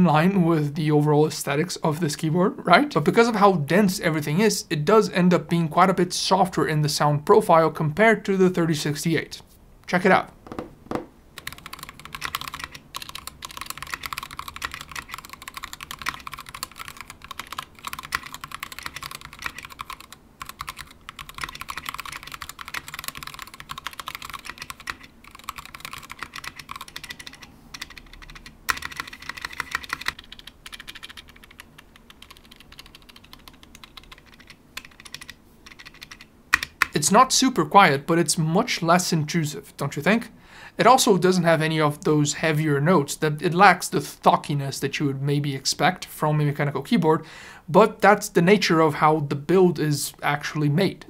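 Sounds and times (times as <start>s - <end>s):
fast typing on mechanical keyboard: 11.4s - 37.0s.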